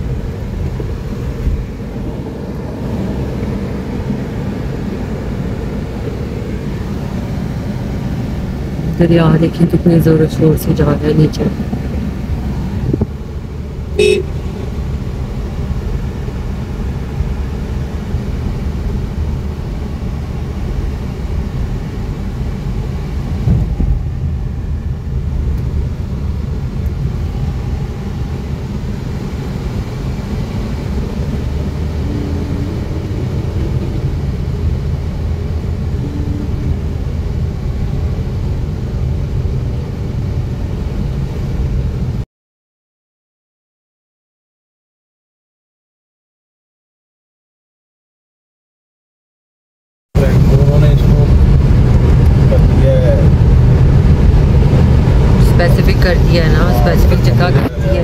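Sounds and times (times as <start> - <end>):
car engine and tyres rumbling: 0.0 - 42.2, 50.2 - 58.0
car horn toot: 13.9 - 14.7, 36.0 - 36.9.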